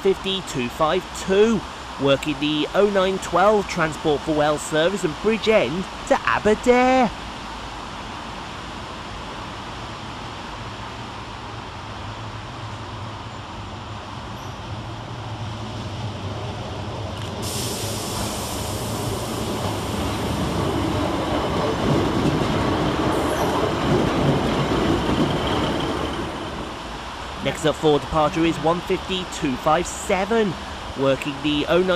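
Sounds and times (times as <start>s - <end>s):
diesel train engine hum: 0.0s - 31.9s
wheel-on-rail noise: 14.3s - 28.6s
bright hiss: 17.4s - 20.6s.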